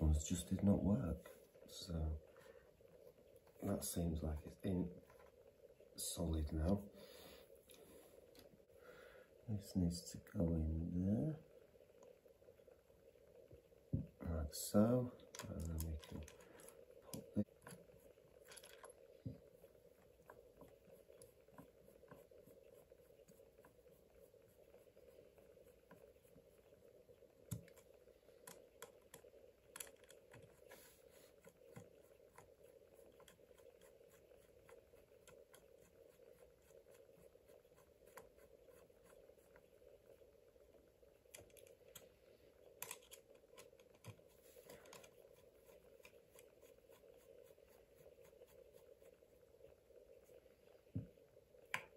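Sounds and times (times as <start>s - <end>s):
faint steady hum: 0.0s - 51.9s
small parts clicking and tapping: 15.2s - 19.4s, 27.4s - 30.8s, 41.2s - 45.2s.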